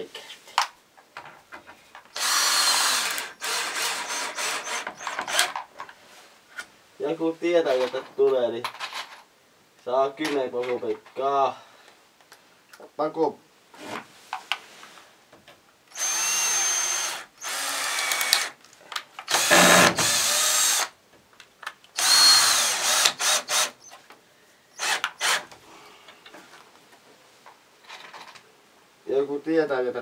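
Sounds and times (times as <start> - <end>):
cordless drill whining into wood: 2.2 - 5.6, 15.9 - 18.6, 19.3 - 21.0, 22.0 - 24.0, 24.7 - 25.6.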